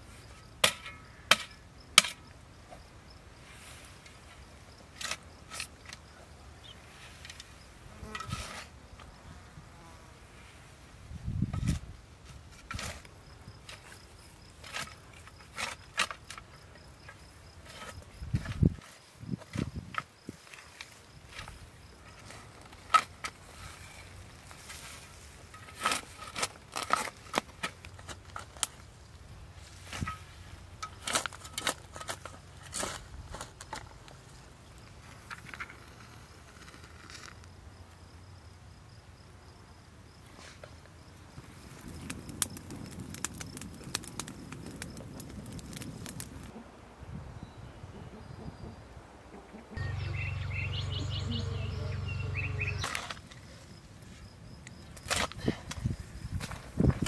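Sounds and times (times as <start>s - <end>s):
shovel scraping soil: 6.9s - 8.8s, 11.5s - 16.5s, 17.6s - 28.7s, 29.6s - 33.9s, 52.8s - 54.2s, 55.0s - 57.0s
spade cutting into soil: 8.0s - 8.8s.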